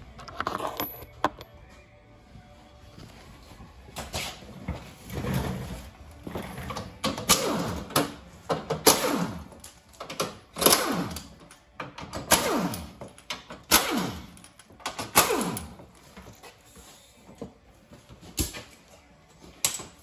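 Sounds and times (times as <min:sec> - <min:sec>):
power tool bursts on bolts: 0:08.8 - 0:09.5, 0:10.6 - 0:11.3, 0:12.2 - 0:13.0, 0:13.7 - 0:14.4, 0:15.0 - 0:15.8.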